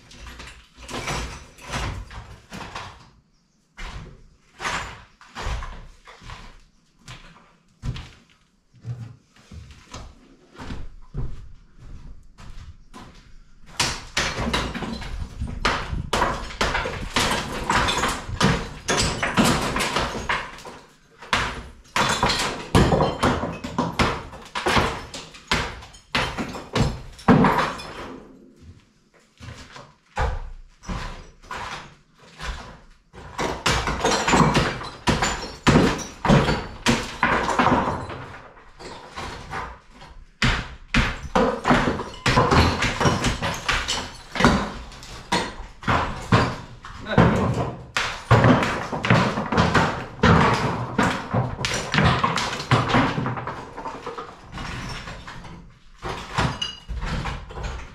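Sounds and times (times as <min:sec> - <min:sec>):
rubble clattering: 0:11.8 - 0:57.9.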